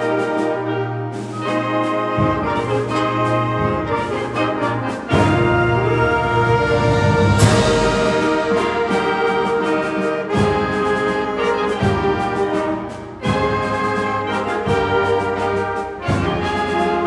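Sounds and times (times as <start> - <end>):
wind band playing chords: 0.0 - 17.0.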